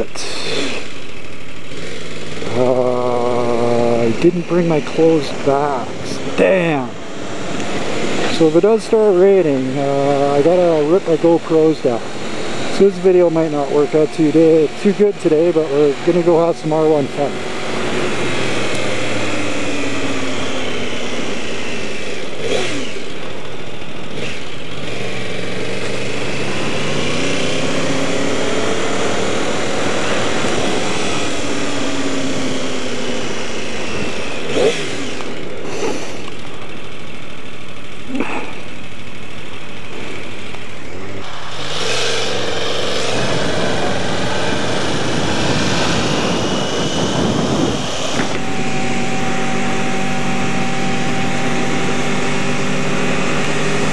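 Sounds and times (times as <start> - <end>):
motorcycle engine revving: 0.0 - 53.9
wind rush: 41.6 - 48.5.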